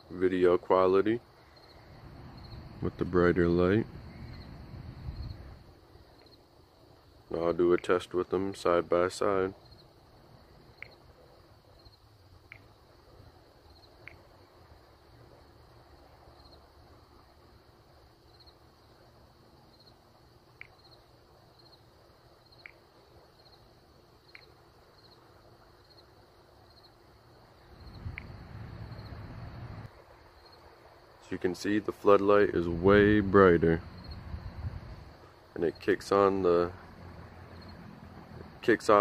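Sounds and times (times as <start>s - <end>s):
insects chirping: 0.0s - 39.0s
steady low hum: 0.0s - 39.0s
sharp ticks: 10.8s - 11.0s, 12.5s - 12.7s, 20.6s - 20.9s, 22.6s - 22.8s, 24.3s - 24.5s, 27.9s - 28.4s.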